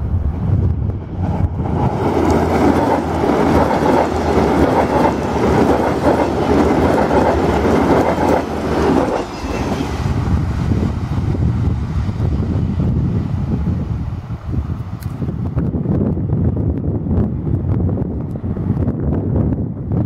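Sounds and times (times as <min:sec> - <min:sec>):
train passing at speed: 0:00.0 - 0:20.0
wheels clacking over rails: 0:01.4 - 0:10.2.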